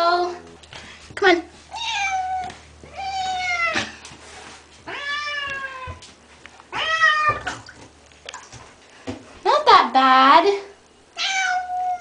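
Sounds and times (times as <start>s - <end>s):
cat meowing: 1.7s - 3.8s, 4.9s - 6.0s, 6.7s - 7.5s, 11.2s - 12.0s.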